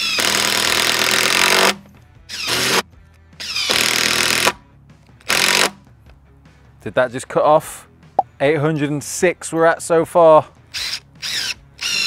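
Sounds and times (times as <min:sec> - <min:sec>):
impact driver hammering screws: 0:00.0 - 0:02.8, 0:03.4 - 0:04.6, 0:05.2 - 0:05.8, 0:10.8 - 0:12.0.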